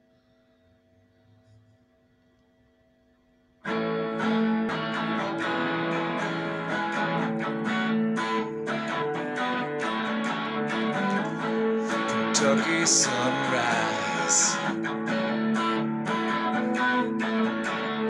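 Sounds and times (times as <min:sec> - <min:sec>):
electric guitar strumming chords: 0:03.6 - 0:18.0.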